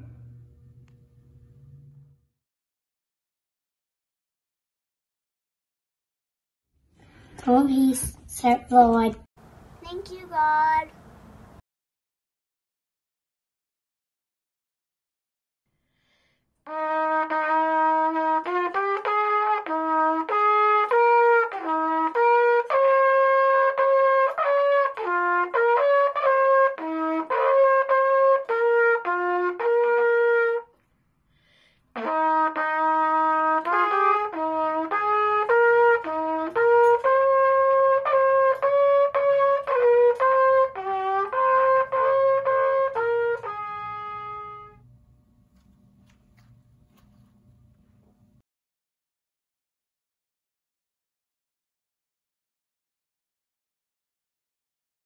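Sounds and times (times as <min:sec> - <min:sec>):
faint low hum: 0:00.0 - 0:02.3, 0:44.6 - 0:48.4
solo trumpet melody: 0:16.7 - 0:30.8, 0:31.9 - 0:44.9.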